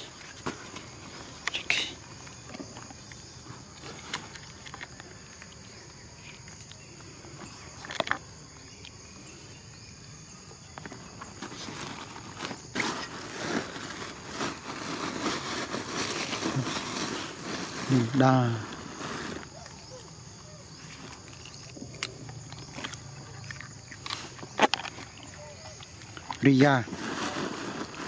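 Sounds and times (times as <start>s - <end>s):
high drone of insects: 0.0s - 28.0s
footsteps on leafy dirt: 10.8s - 19.6s.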